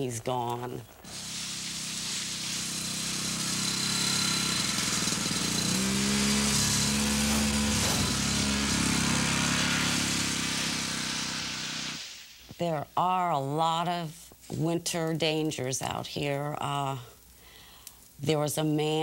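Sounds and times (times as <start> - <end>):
snowmobile engine running: 1.0 - 12.0.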